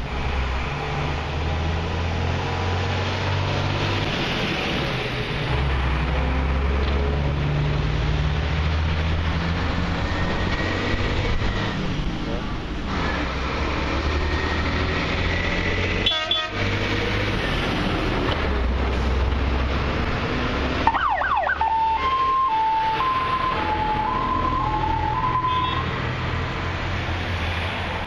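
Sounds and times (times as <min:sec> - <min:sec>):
diesel truck engines rumbling: 0:00.0 - 0:28.0
siren yelping and two-tone wail: 0:20.8 - 0:25.9.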